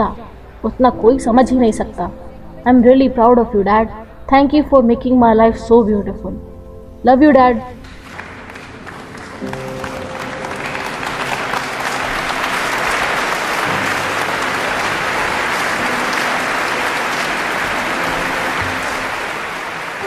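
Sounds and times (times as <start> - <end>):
soft background music: 0.0 - 20.0
audience applauding: 7.8 - 20.0.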